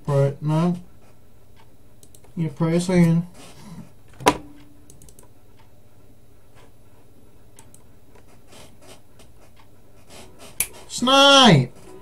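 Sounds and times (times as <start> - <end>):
low steady hum: 0.0 - 12.0
faint clicks: 1.6 - 2.4, 4.6 - 5.7, 7.6 - 10.8
light rubbing: 8.2 - 11.1.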